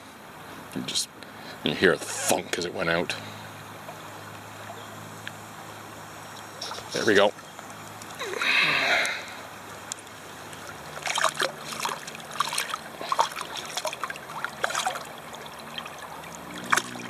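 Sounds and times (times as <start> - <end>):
fish splashing at water surface: 9.1 - 17.0.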